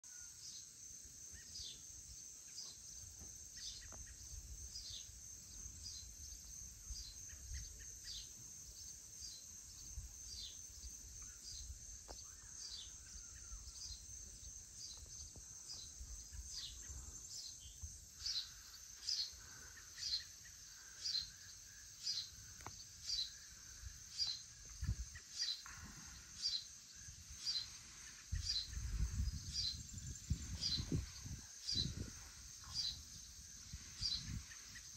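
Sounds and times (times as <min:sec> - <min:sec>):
insects chorus: 0:00.0 - 0:34.9
wind rumble on microphone: 0:24.6 - 0:26.0, 0:27.0 - 0:34.9.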